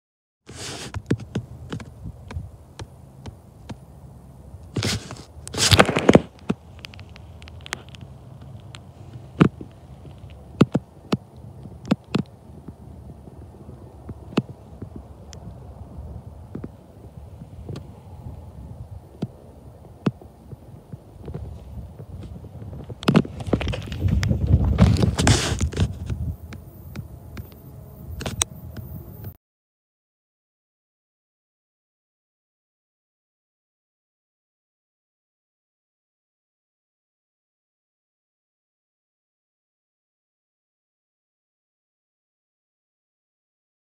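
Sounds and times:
faint low rumble: 1.2 - 29.4
camera handling rustles: 4.7 - 10.8, 21.2 - 26.3
footsteps crunching on gravel: 4.7 - 10.9, 20.1 - 26.4.

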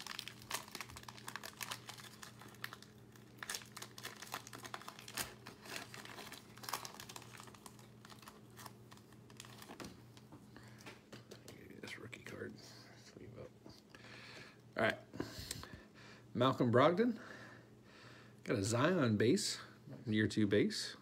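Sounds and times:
foil wrapper crinkling and tearing: 0.0 - 10.2.

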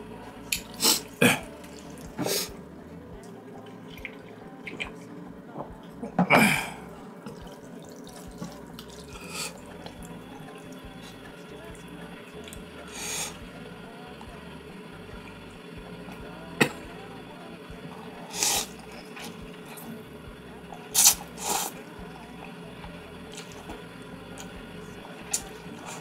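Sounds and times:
noodles being slurped: 6.4 - 13.4, 18.2 - 20.0, 20.9 - 22.6.

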